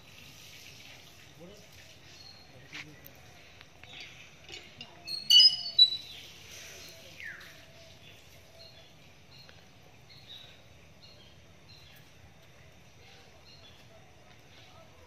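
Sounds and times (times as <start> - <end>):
small birds chirping: 0.0 - 15.0
sharp high-pitched bird call: 5.1 - 6.2.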